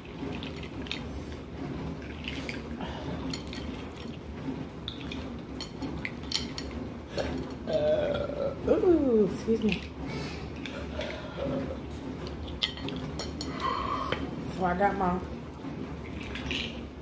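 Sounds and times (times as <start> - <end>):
utensils and dishes clinking: 3.2 - 3.8, 5.0 - 7.8, 10.6 - 14.2.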